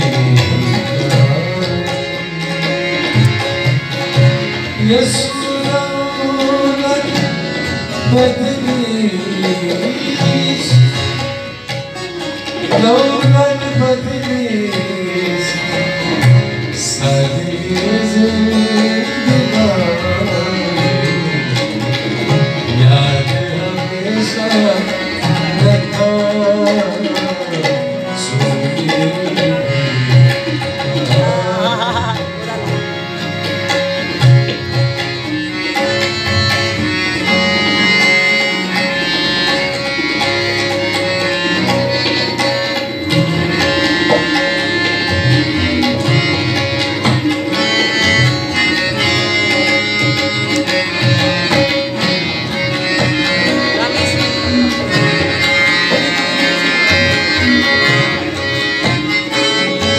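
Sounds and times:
man singing: 0:00.0 - 0:03.4, 0:04.8 - 0:11.3, 0:12.7 - 0:33.0
harmonium: 0:00.0 - 0:59.9
tabla strokes: 0:00.0 - 0:59.9.

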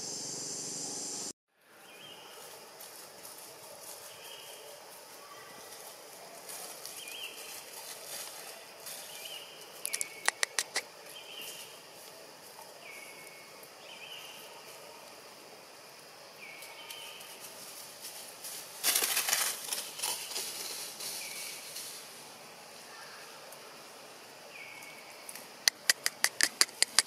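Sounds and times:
dry leaves crackling and rustling: 0:01.9 - 0:09.9, 0:16.4 - 0:22.2.

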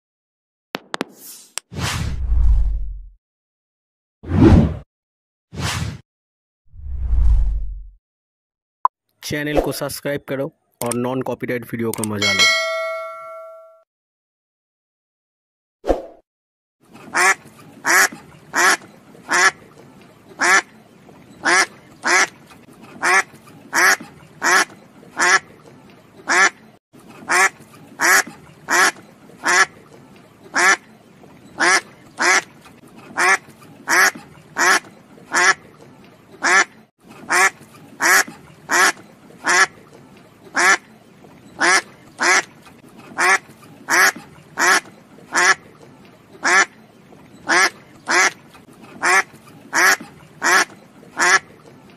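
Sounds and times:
duck quacking: 0:17.1 - 0:19.6, 0:20.4 - 0:20.7, 0:21.4 - 0:22.4, 0:23.0 - 0:25.5, 0:26.3 - 0:26.6, 0:27.2 - 0:29.8, 0:30.6 - 0:30.8, 0:31.6 - 0:32.5, 0:33.1 - 0:35.6, 0:36.4 - 0:39.8, 0:40.5 - 0:40.9, 0:41.6 - 0:42.5, 0:43.1 - 0:45.7, 0:46.4 - 0:46.8, 0:47.4 - 0:48.4, 0:49.0 - 0:51.5.

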